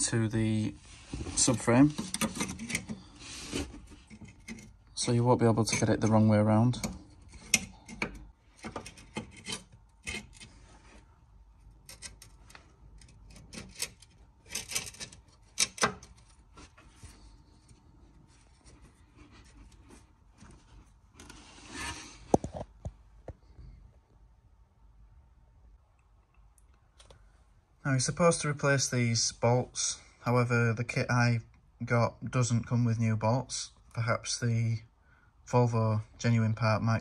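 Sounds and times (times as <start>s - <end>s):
metal scraping and rubbing: 0.5s - 11.1s, 11.7s - 22.3s.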